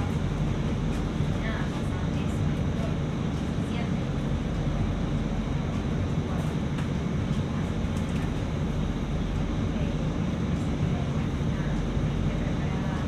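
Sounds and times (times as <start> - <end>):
bus engine and road noise: 0.0 - 13.0.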